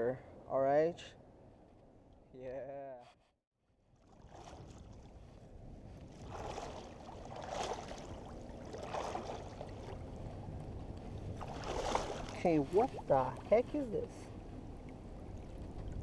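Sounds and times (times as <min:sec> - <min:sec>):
water sloshing around wading legs: 0:03.8 - 0:16.0
wind rumble on microphone: 0:04.0 - 0:16.0.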